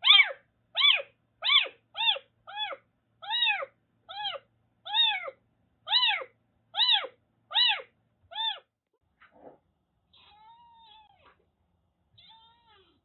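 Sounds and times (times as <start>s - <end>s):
kitten meowing: 0.0s - 8.7s, 10.1s - 11.4s, 12.2s - 13.0s.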